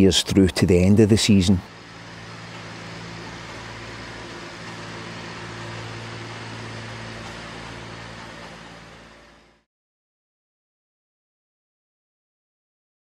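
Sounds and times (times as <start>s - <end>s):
ride-on machine engine hum: 0.0s - 9.7s.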